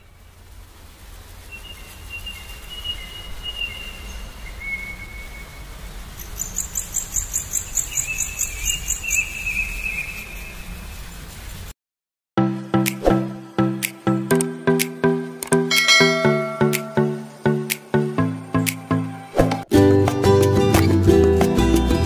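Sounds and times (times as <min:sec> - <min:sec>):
insect chirping: 0:01.2 - 0:11.6, 0:16.0 - 0:18.5
birds whistling: 0:01.5 - 0:05.6, 0:06.2 - 0:10.6.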